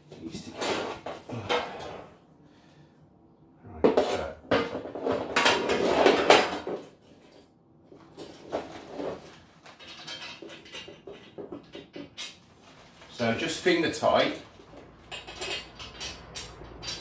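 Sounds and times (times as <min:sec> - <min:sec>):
metal clinks and scraping: 0:05.5 - 0:17.0
metal cage frames clattering: 0:08.1 - 0:13.8, 0:14.8 - 0:17.0.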